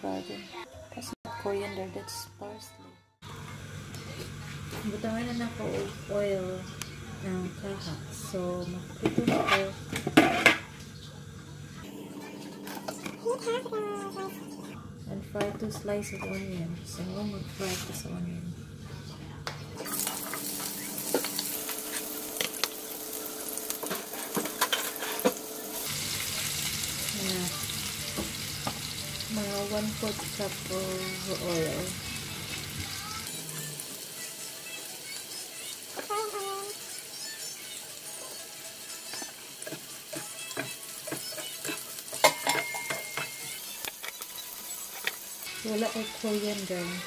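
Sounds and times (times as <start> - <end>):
onion sizzling in a frying pan: 19.8 - 47.0
spatula scraping and tapping pan: 39.1 - 45.2.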